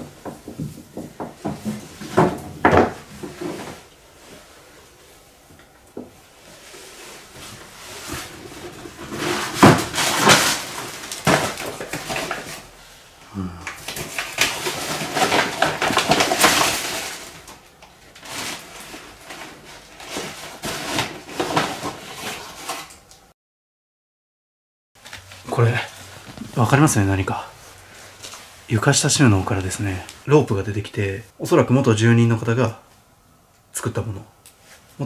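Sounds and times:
plastic bags crinkling: 6.5s - 12.8s, 13.7s - 23.1s.

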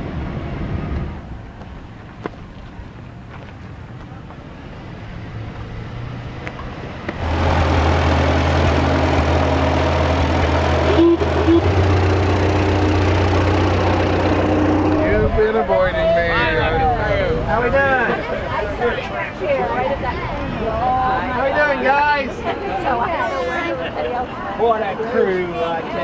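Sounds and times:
faint outdoor background noise: 0.0s - 26.0s
tractor engine driving past: 5.0s - 15.7s.

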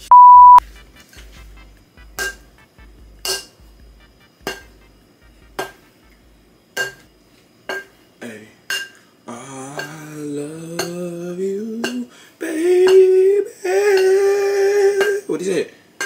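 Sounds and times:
metal bowl clanging: 3.2s - 3.6s, 6.8s - 7.1s, 7.7s - 8.0s, 8.7s - 9.0s.

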